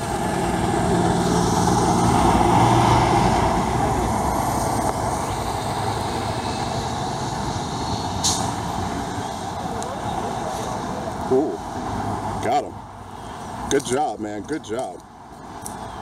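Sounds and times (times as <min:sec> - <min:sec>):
vehicle passing close by: 0:00.0 - 0:12.4
steady traffic noise: 0:00.0 - 0:16.0.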